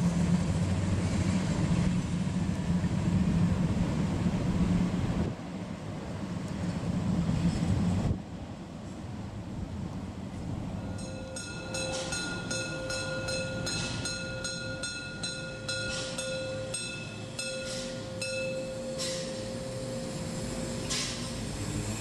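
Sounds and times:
train rumble: 0.0s - 22.0s
sustained high tone: 10.8s - 21.6s
short hissing puffs: 20.3s - 22.0s.

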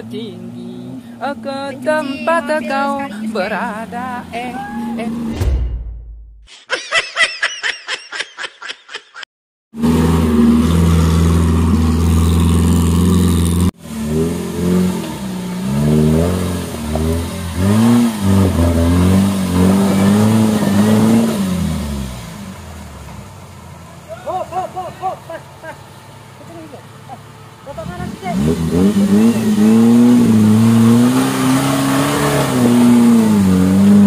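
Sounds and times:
off-road vehicle engine revving: 0.0s - 5.4s, 9.7s - 34.0s.

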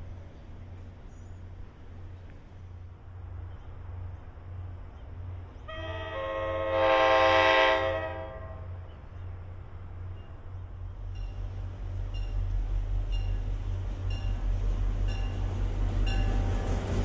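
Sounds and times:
locomotive air horn blast: 5.7s - 8.8s.

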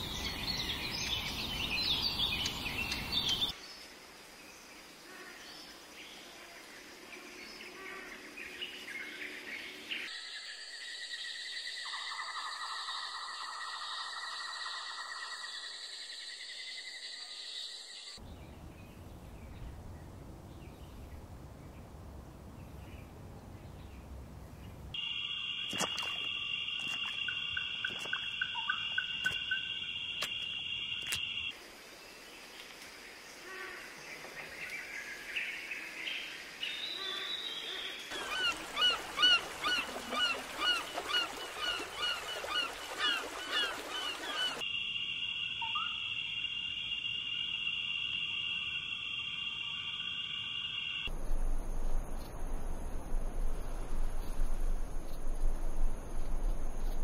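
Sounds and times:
birds chirping: 0.0s - 3.6s, 34.1s - 44.6s
low rumbling ambience: 51.1s - 57.0s.

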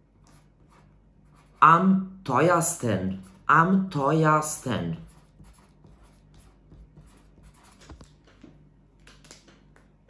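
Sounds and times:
pen scratching on paper: 0.2s - 1.8s, 2.9s - 8.2s.

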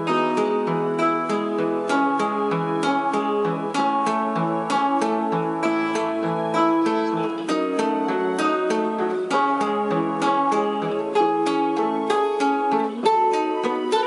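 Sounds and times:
classical guitar fingerstyle: 0.0s - 14.0s.

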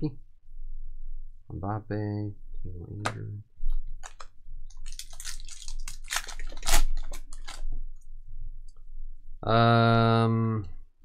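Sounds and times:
foil wrapper crinkling and tearing: 4.0s - 7.7s.

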